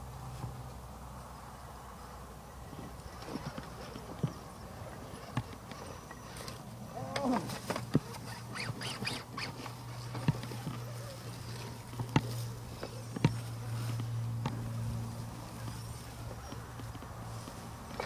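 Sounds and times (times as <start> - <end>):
toy car motor whirring: 3.1 - 11.7
tires knocking on stones: 7.0 - 18.0.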